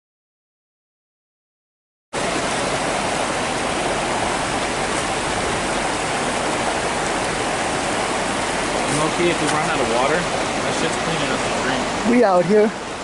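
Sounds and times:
creek rushing over stones: 0:02.2 - 0:13.0.

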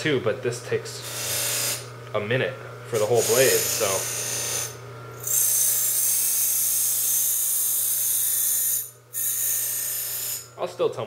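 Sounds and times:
electric motor hum: 0:00.1 - 0:10.7
abrasive wheel hissing on blade: 0:03.0 - 0:04.1.

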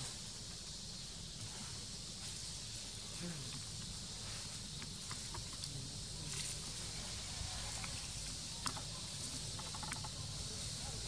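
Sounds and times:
high insect hiss: 0:00.0 - 0:11.0.

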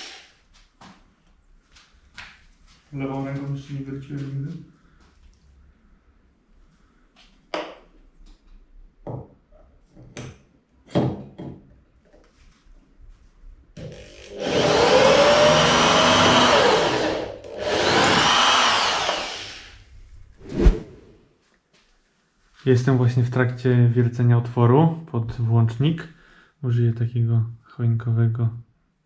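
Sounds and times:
electric drill running: 0:00.0 - 0:00.3, 0:13.8 - 0:19.8.

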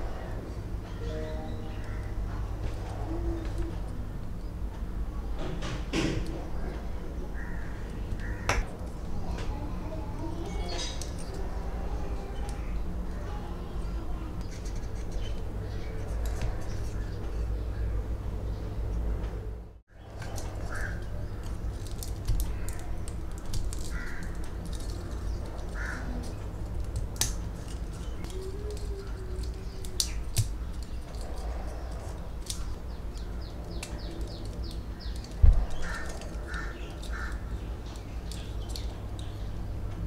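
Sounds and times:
steady low hum: 0:00.0 - 0:40.0
plastic parts clicking: 0:20.2 - 0:39.3.

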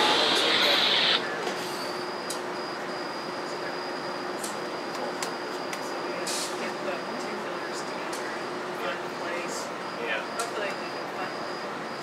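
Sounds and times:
steady low hum: 0:00.0 - 0:01.2
loud rushing noise with squealing: 0:00.0 - 0:01.3
faint high whine: 0:00.0 - 0:01.4.

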